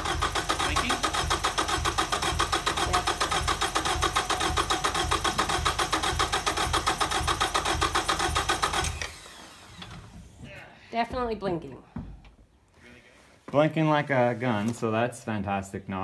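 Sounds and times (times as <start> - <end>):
starter cranking engine: 0.0 - 10.0.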